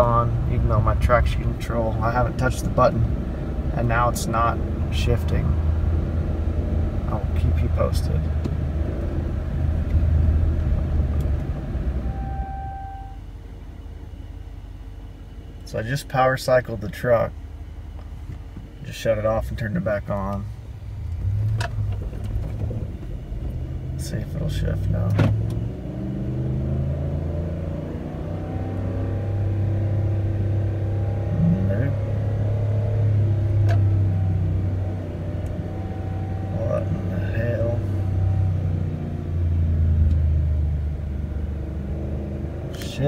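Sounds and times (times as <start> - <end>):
truck engine rumble: 0.0 - 15.9, 16.5 - 43.0
steady beep: 12.0 - 13.2
truck engine revving high: 24.8 - 43.0.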